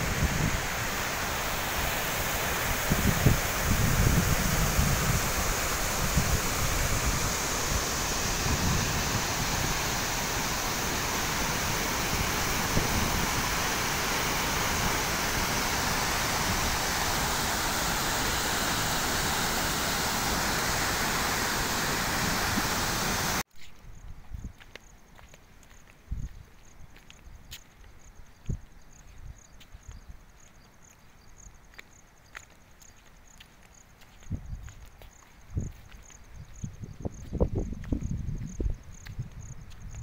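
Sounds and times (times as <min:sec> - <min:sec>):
waterfall rushing: 0:00.0 - 0:23.4
wind buffeting microphone: 0:00.0 - 0:24.6, 0:34.2 - 0:34.7, 0:35.5 - 0:40.0.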